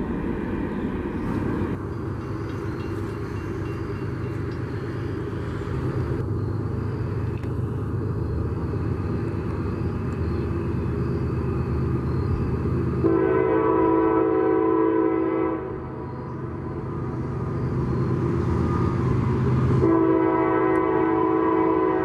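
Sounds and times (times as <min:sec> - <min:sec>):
diesel locomotive running: 0:00.0 - 0:22.0
train air horn blast: 0:13.0 - 0:15.9, 0:19.8 - 0:22.0.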